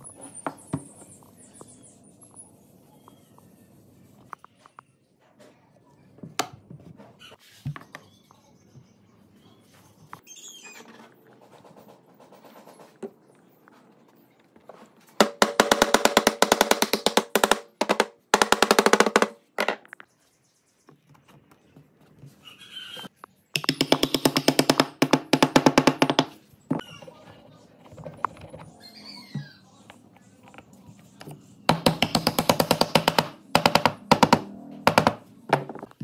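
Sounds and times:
tool rapidly tapping wood floor: 15.2s - 19.4s, 23.6s - 26.3s, 31.7s - 35.6s.

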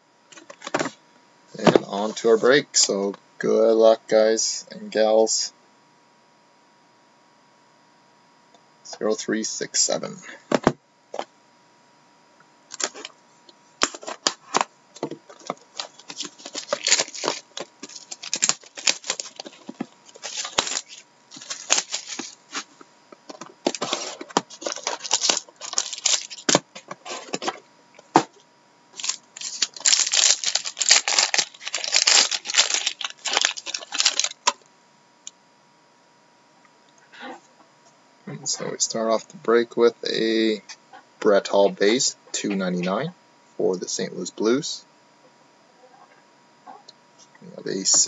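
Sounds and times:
cardboard and wrapping tearing: 15.5s - 22.7s, 23.6s - 27.4s, 29.0s - 34.5s.

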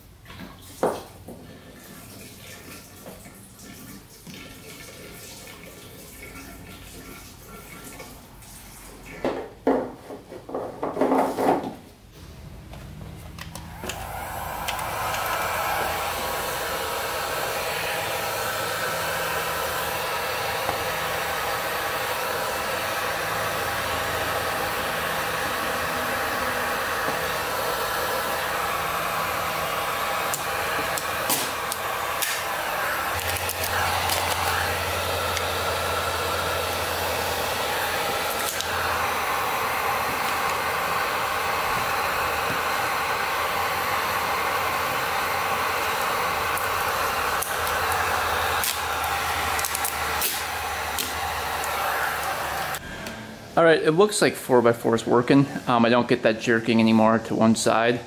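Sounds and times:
heat gun blowing: 12.2s - 53.2s.

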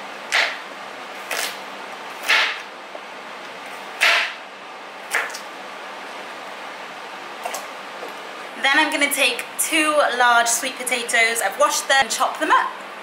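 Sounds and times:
knife chopping carrots on board: 2.2s - 2.6s.

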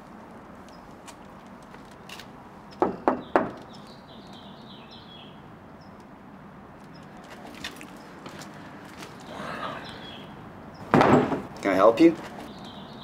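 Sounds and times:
sharp knocks: 2.8s - 3.7s, 10.8s - 11.6s
bird twittering: 9.2s - 10.9s, 12.4s - 13.0s.

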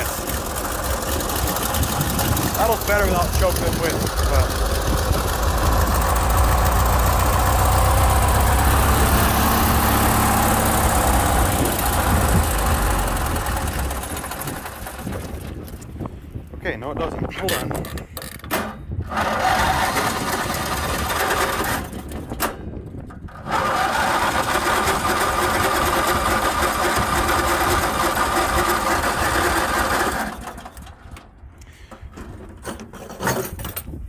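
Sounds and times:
electric starter cranking engine: 0.0s - 15.6s, 19.0s - 22.4s, 23.2s - 31.2s.

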